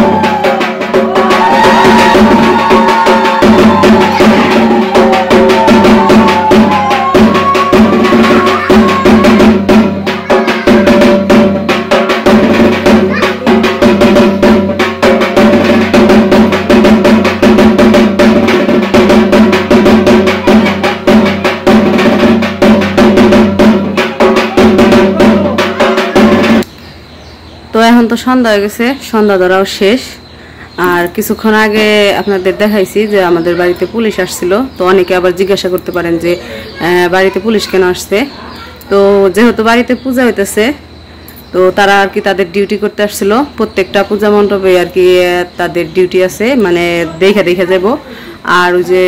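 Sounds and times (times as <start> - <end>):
drums played fast: 0.0 - 26.7, 31.5 - 38.3.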